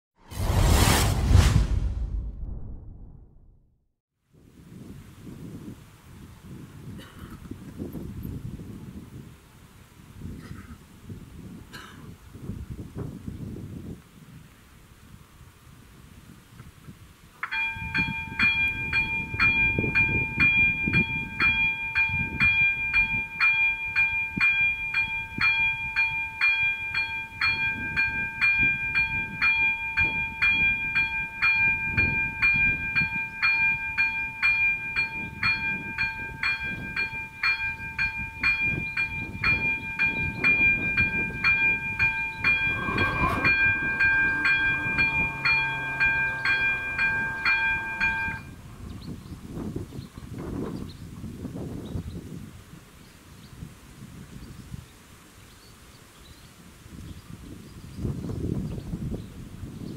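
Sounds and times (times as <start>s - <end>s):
electronic warning bell ringing: 17.5s - 48.6s.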